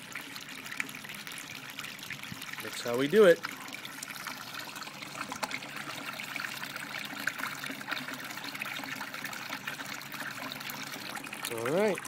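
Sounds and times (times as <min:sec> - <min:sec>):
water gushing and splashing: 0:00.0 - 0:12.0.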